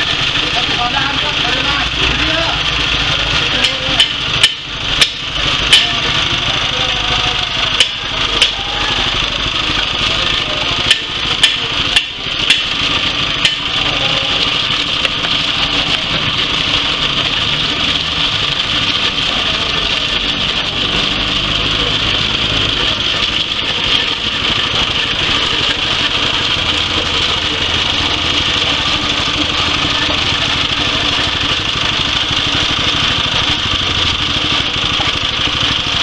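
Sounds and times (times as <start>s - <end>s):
small petrol engine running: 0.0s - 36.0s
sharp knocks and clicks: 3.6s - 6.2s, 10.8s - 13.9s, 14.7s - 19.5s.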